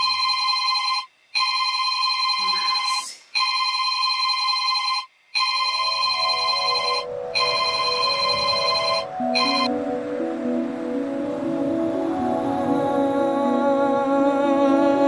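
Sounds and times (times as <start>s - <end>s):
smartphone ringtone: 0.0s - 9.9s
soft slow music: 6.0s - 15.0s.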